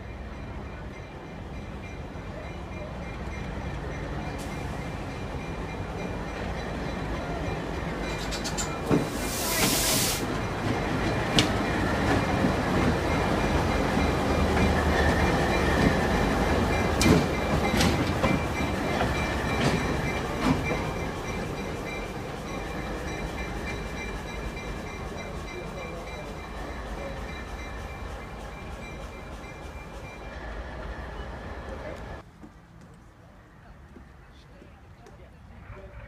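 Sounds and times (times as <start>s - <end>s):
diesel locomotive engine rumbling: 0.0s - 36.0s
train wheels clicking over rail joints: 4.2s - 30.2s
short hiss: 9.0s - 10.3s.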